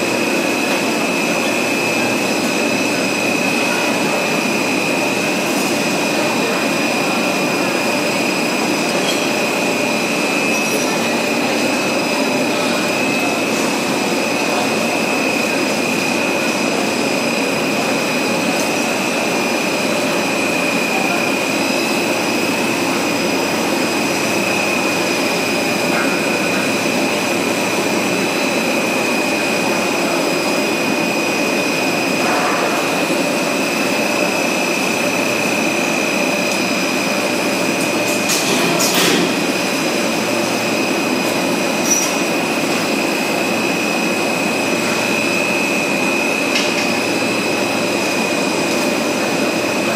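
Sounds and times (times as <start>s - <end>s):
loud steady machine noise: 0.0s - 49.9s.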